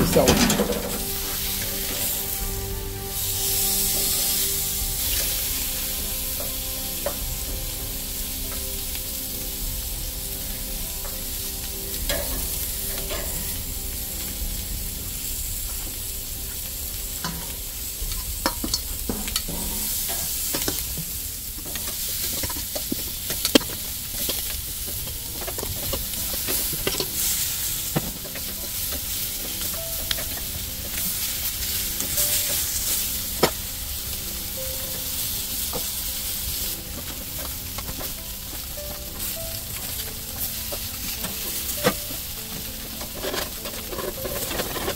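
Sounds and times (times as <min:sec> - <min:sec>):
metal tongs clicking on grate: 0:00.0 - 0:01.2, 0:12.1 - 0:13.5, 0:21.6 - 0:27.4, 0:39.2 - 0:44.9
food sizzling on grill: 0:00.0 - 0:44.9.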